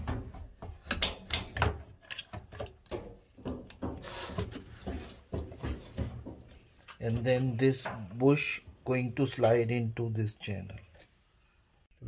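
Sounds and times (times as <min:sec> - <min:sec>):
short rubbing scrape: 0:04.0 - 0:04.6.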